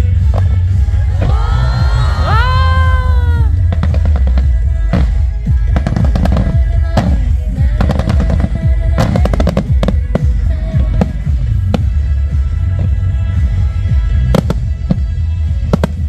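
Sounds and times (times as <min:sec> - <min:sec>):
loud bass-heavy music: 0:00.0 - 0:16.0
fireworks popping and crackling: 0:03.3 - 0:16.0.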